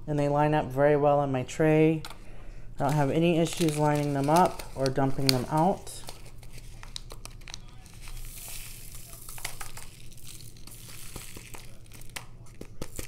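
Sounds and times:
plastic bag crinkling: 2.8 - 13.0
tiny beads pattering rattle: 2.9 - 13.0.

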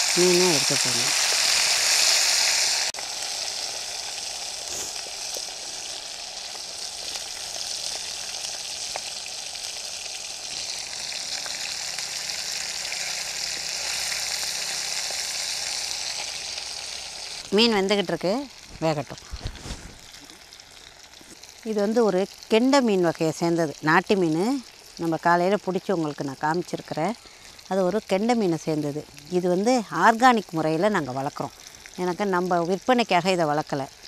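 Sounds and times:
fish sizzling in hot oil: 0.0 - 34.0.

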